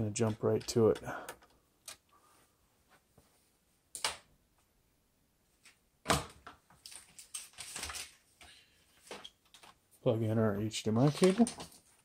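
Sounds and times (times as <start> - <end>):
cables and parts clattering: 10.9 - 12.0.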